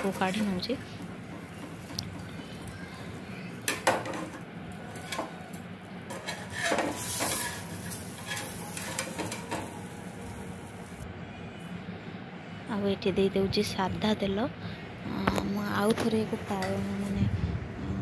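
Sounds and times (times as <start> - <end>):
tongs clinking on metal: 4.9 - 9.7
tongs scraping on griddle: 4.9 - 9.8.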